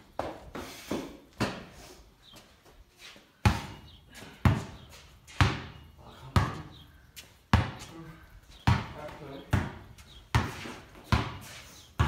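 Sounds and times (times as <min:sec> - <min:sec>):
basketball bouncing with echo: 0:03.4 - 0:12.0.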